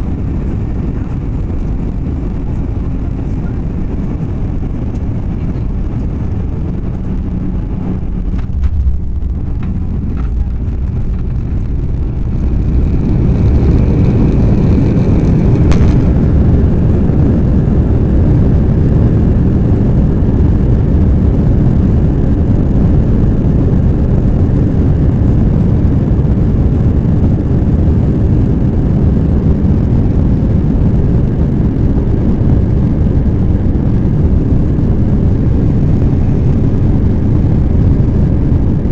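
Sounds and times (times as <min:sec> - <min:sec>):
jet engines rumbling: 0:00.0 - 0:38.9
wheels knocking on runway: 0:08.3 - 0:14.2.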